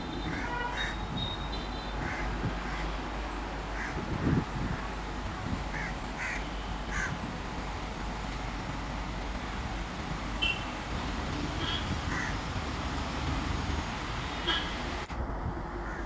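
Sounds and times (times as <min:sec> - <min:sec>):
electric locomotive rumbling: 0:00.0 - 0:16.0
crows cawing: 0:02.0 - 0:02.9, 0:03.8 - 0:04.0, 0:05.7 - 0:07.2, 0:12.1 - 0:12.4.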